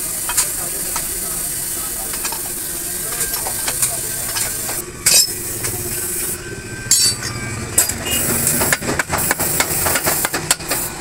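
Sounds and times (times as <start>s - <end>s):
metal tools knocking on steel: 6.9s - 10.3s.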